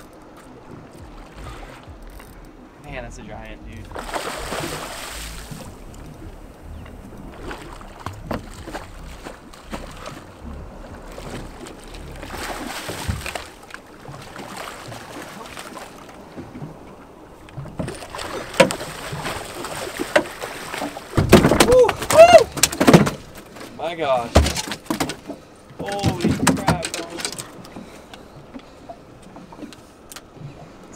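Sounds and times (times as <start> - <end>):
water sloshing: 0.0 - 30.9
fish thrashing and splashing: 3.7 - 16.9, 17.6 - 23.7.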